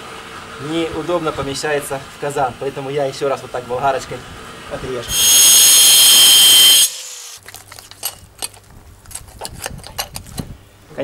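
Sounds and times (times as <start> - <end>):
angle grinder cutting bone: 5.1 - 7.4.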